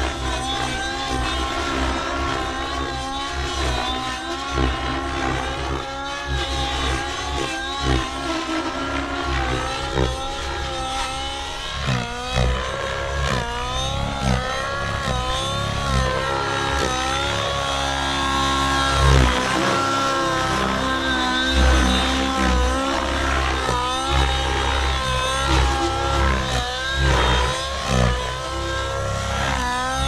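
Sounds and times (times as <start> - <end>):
rc helicopter engine and rotor: 0.0 - 30.0.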